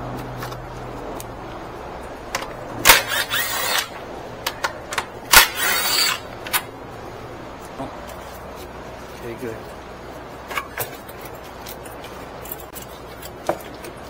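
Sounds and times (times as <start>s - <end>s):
ratchet wrench clicking: 2.9s - 4.0s, 5.3s - 6.2s.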